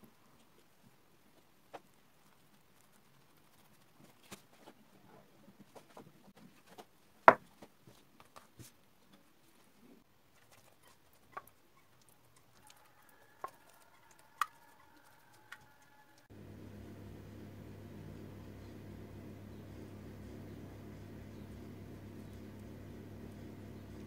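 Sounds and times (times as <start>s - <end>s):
steady low hum: 15.9s - 24.0s.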